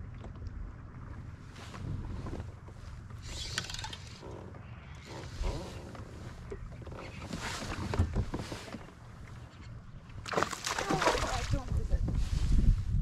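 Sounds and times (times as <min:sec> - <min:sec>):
water washing against kayak: 0:10.2 - 0:12.4
wind buffeting microphone: 0:10.9 - 0:13.0.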